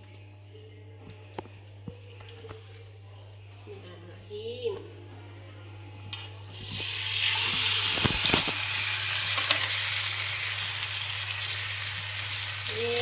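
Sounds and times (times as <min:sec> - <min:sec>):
meat sizzling on a grill pan: 0:06.6 - 0:13.0.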